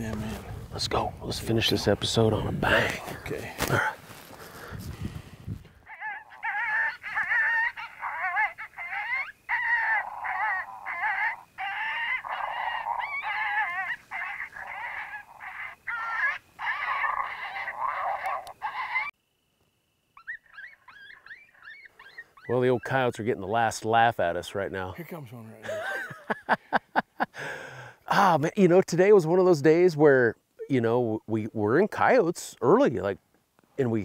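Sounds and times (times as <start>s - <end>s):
coyote yelps barks and howls: 5.8s - 19.2s, 20.1s - 23.0s.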